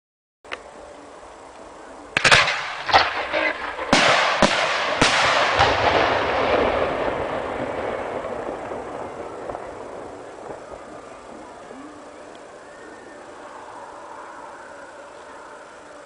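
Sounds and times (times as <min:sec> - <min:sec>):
rolling echo: 0:02.1 - 0:16.0
fireworks bangs: 0:02.2 - 0:13.3.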